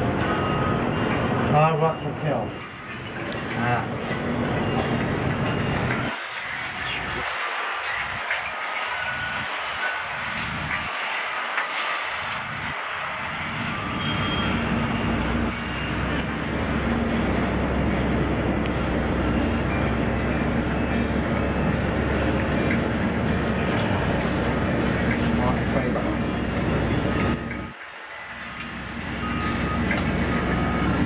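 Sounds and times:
cable car cabin rumble: 0.0s - 28.0s.

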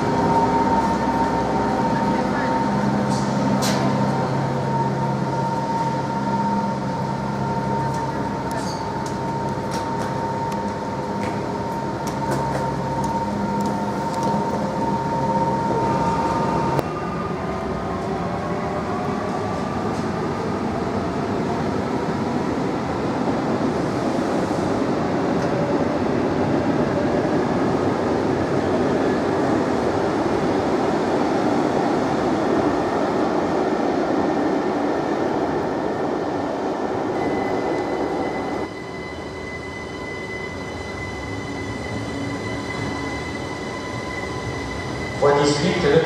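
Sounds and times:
train running noise: 0.0s - 46.0s.

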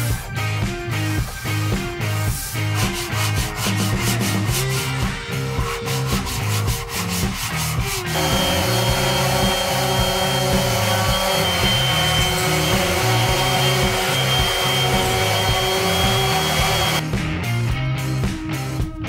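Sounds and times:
hand sanding wood: 2.4s - 17.0s
orbital sander whining on wood: 8.1s - 17.0s.

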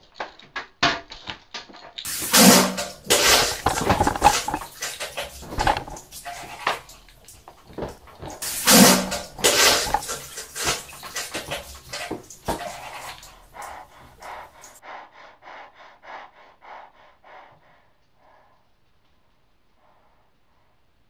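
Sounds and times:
quick panting breaths: 2.1s - 18.8s.

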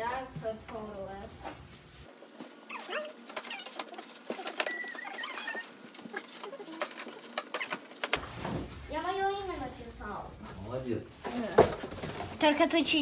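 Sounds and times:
short high squeaks: 2.5s - 6.8s.

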